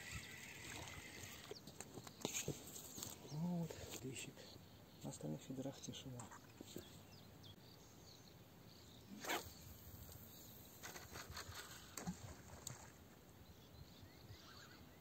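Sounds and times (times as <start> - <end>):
brief swish: 9.1 - 9.6.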